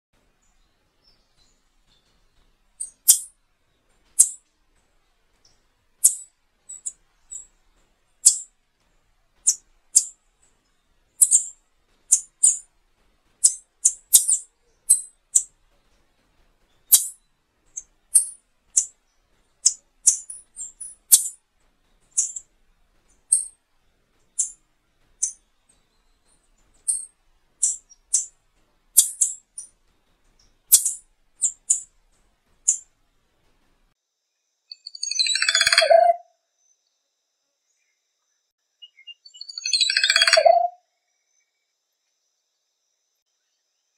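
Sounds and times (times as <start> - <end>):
bird high sharp call notes: 34.9 - 36.2, 38.9 - 40.8.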